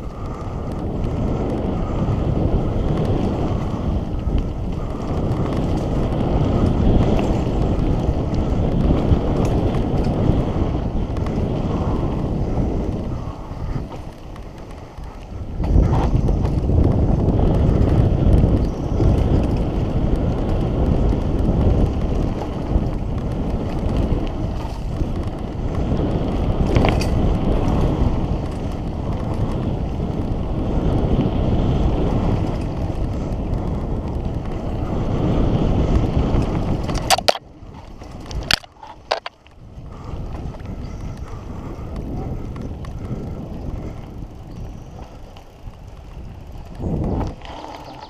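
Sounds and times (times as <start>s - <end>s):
bike rattling: 0.0s - 48.0s
tyre rumble: 0.0s - 48.0s
wind buffeting microphone: 0.0s - 48.0s.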